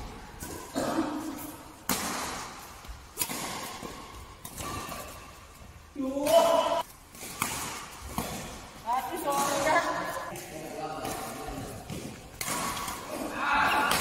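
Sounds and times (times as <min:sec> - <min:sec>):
badminton racket hitting shuttlecock: 0:00.4 - 0:14.0
man shouting: 0:06.0 - 0:06.8.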